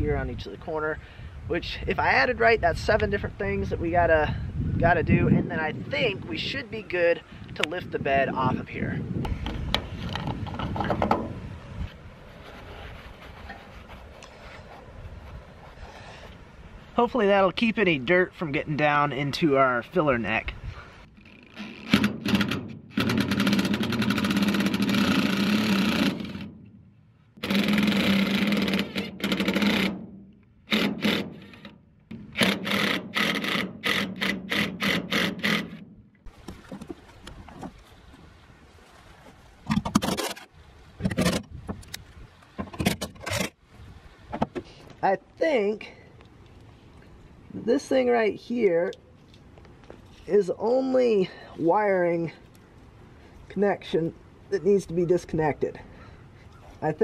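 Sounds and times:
wind rumbling on microphone: 0.0s - 17.1s, 19.9s - 21.2s, 36.3s - 45.0s
sharp clicks and knocks: 9.2s - 11.3s, 21.2s - 26.8s, 27.4s - 35.8s, 39.7s - 43.6s.

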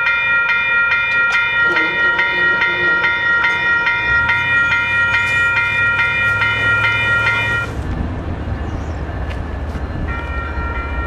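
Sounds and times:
crossing bell ringing rapidly: 0.0s - 7.7s, 10.1s - 11.0s.

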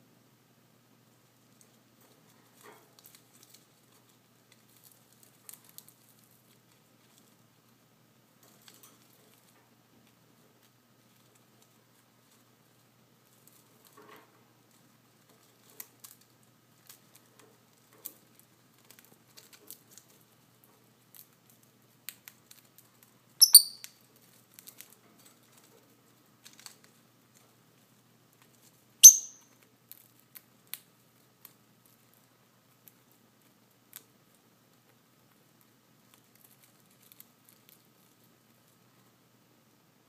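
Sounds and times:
faint beak clicks and rustles: 1.4s - 7.8s, 8.4s - 28.9s, 29.5s - 39.2s
bird chirps: 23.4s - 23.9s, 29.0s - 29.4s.

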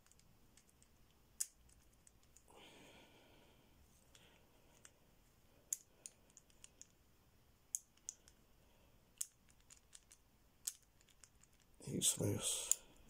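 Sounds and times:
padlock dials clicking: 9.2s - 11.8s.

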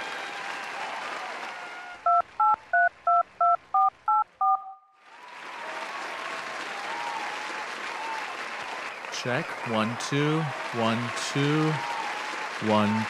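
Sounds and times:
telephone keypad dual-tone beeps: 2.1s - 4.8s
crowd noise: 5.1s - 13.0s.

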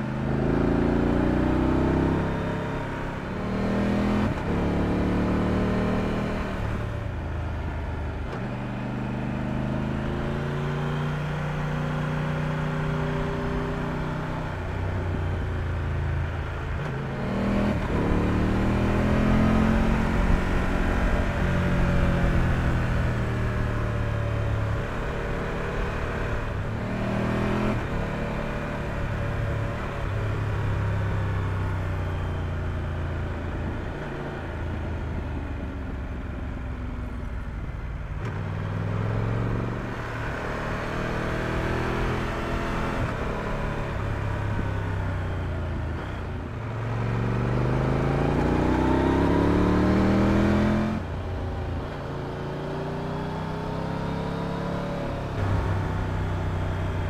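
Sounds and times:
motorcycle engine revving: 38.2s - 57.0s.

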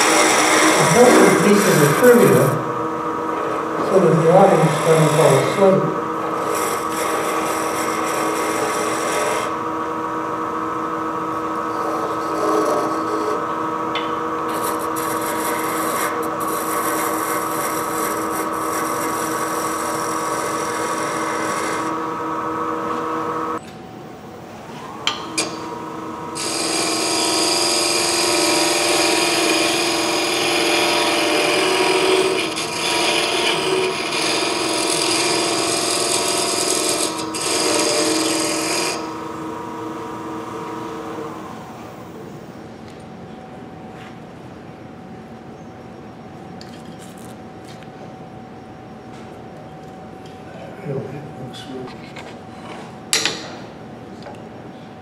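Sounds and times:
tool scraping spinning wood: 0.0s - 9.6s, 11.3s - 22.0s, 26.4s - 41.6s
wood lathe motor hum: 0.0s - 23.6s, 25.0s - 42.4s.

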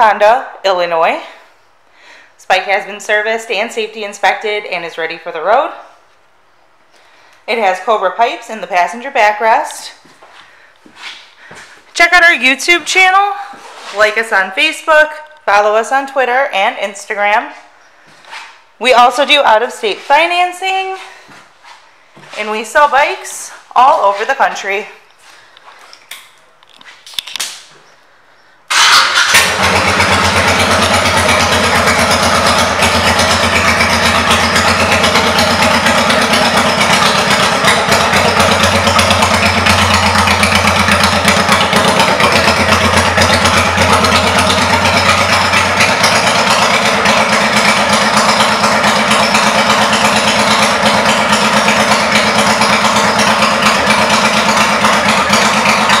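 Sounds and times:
motorcycle engine idling: 28.7s - 56.0s.

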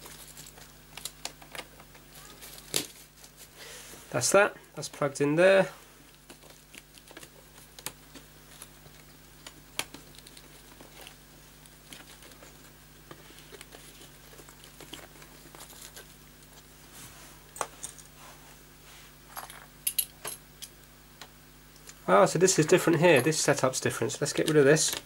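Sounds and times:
small clicks and rustling of cables: 0.0s - 3.4s, 6.1s - 16.7s, 22.9s - 25.0s
faint low hum: 0.0s - 25.0s.

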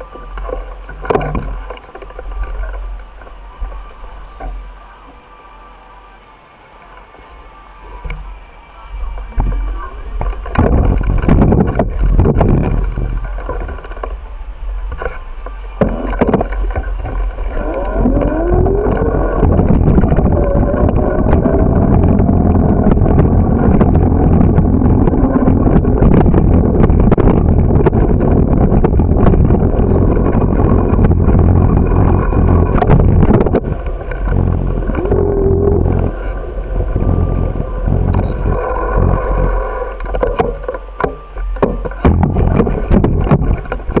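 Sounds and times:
bicycle rattling over pavement: 0.0s - 5.1s, 6.0s - 44.0s
wind buffeting microphone: 6.8s - 44.0s
rising tone: 17.1s - 40.3s.

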